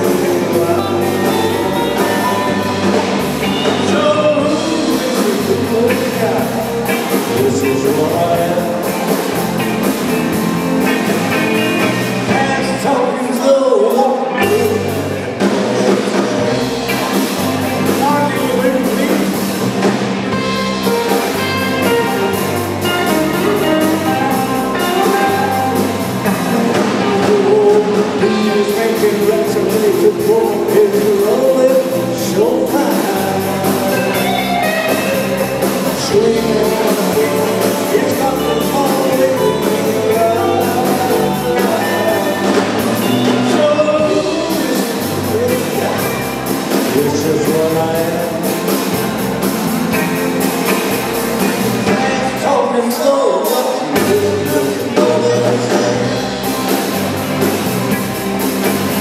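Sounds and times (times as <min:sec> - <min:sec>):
lead singer singing: 0:00.0 - 0:57.5
live rock band playing: 0:00.0 - 0:59.0.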